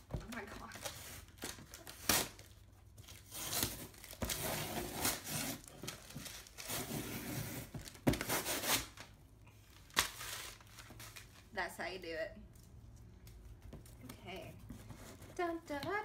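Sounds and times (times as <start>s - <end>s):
paper rustling and crinkling: 0.2s - 11.6s.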